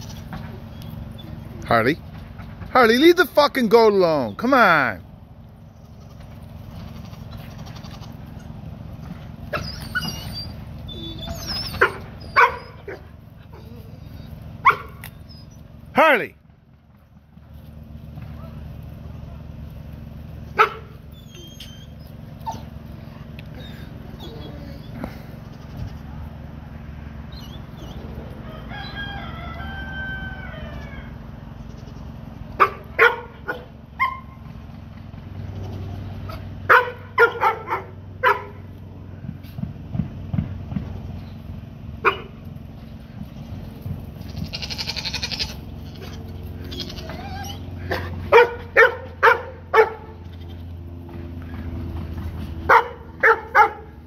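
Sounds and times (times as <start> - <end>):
dog barking: 11.8 - 13.1, 14.6 - 15.0, 20.6 - 20.9, 32.6 - 34.3, 36.7 - 38.6, 42.0 - 42.4, 47.9 - 50.1, 52.7 - 54.0
rooster crowing: 28.3 - 31.5.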